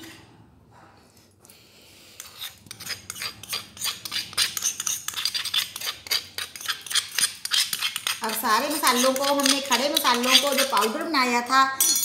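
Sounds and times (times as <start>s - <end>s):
utensil scraping a bowl: 1.8s - 11.2s.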